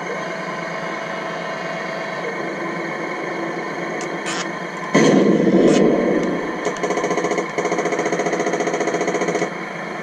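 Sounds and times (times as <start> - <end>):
engine idle sound effect: 0.5 - 9.9
cannon fire blast: 4.9 - 6.7
machine-gun fire rattle: 5.0 - 9.6.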